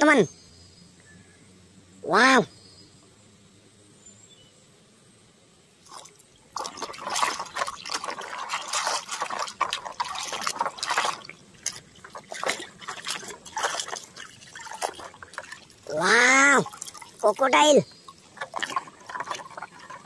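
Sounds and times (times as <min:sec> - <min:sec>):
hand splashing water in basin: 0:05.9 - 0:20.0.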